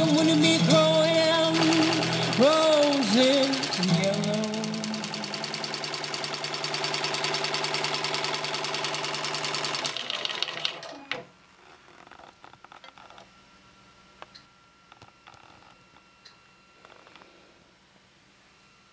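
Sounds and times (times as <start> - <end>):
embroidery machine stitching: 0.0 - 11.2.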